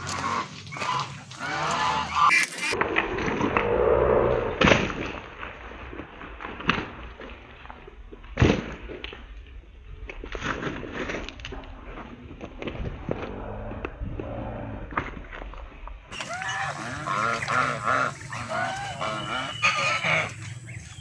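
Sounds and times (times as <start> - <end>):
geese honking: 0.0 - 2.8, 16.1 - 21.0.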